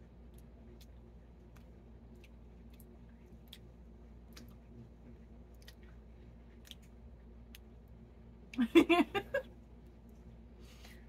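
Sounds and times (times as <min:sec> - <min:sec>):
low room hum: 0:00.0 - 0:11.0
mouth clicks and lip smacks: 0:00.3 - 0:04.8, 0:05.5 - 0:07.7.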